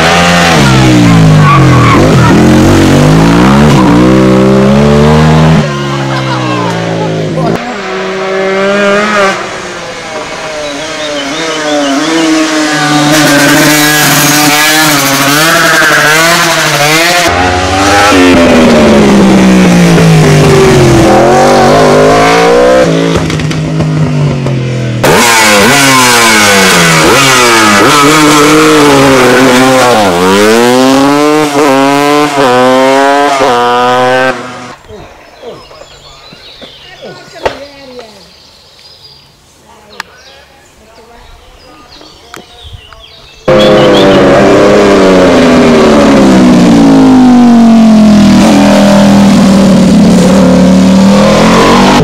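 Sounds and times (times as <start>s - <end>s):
racing motorcycles revving: 0.0s - 34.8s, 43.4s - 52.0s.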